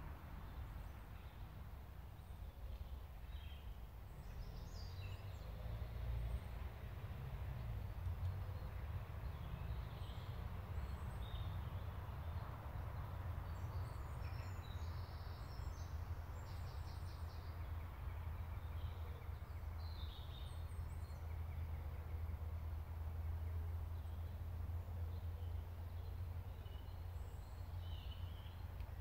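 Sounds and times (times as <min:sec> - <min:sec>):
low woodland rumble: 0:00.0 - 0:29.0
small birds chirping: 0:07.5 - 0:29.0.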